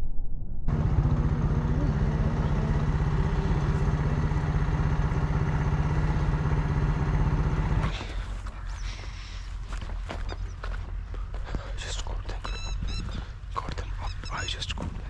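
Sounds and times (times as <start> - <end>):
small motorcycle engine running: 0.7 - 8.9.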